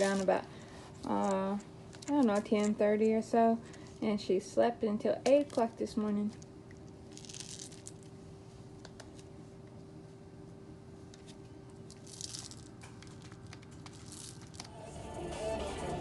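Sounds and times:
rice rattling in a bottle: 0:00.0 - 0:00.3, 0:07.1 - 0:08.1, 0:11.9 - 0:14.7.

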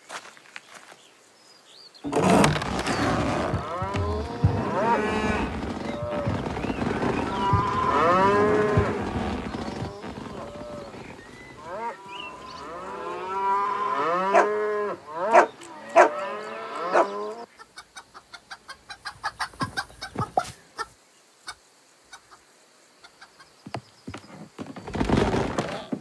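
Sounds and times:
sharp knocks: 0:02.0 - 0:11.8
cows mooing: 0:03.4 - 0:17.4
chickens clucking: 0:17.0 - 0:20.9.

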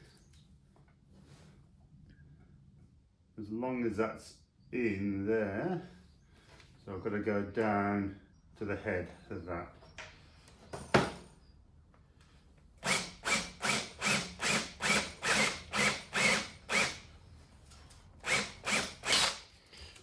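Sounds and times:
power drill bursts into wood: 0:12.8 - 0:17.0, 0:18.2 - 0:19.5.

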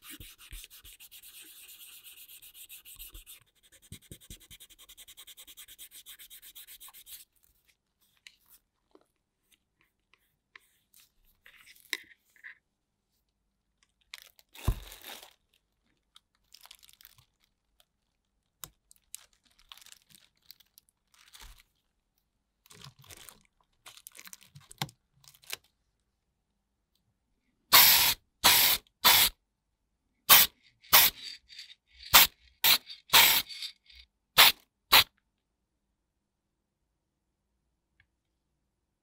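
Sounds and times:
plastic bag crinkling: 0:14.2 - 0:15.6, 0:16.4 - 0:18.2, 0:18.9 - 0:21.8, 0:22.6 - 0:25.7
aerosol can spraying: 0:27.7 - 0:29.3, 0:30.3 - 0:33.8, 0:34.4 - 0:35.1.

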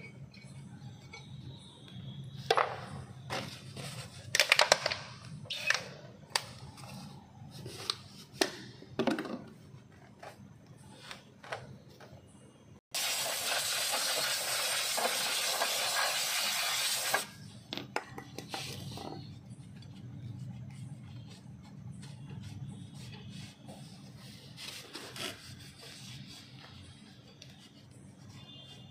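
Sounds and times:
aerosol spray hiss: 0:13.0 - 0:17.2.

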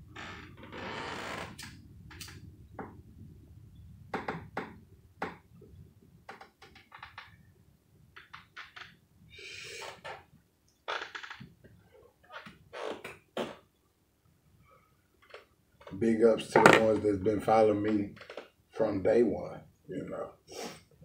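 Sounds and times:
short hiss: 0:20.5 - 0:20.9.

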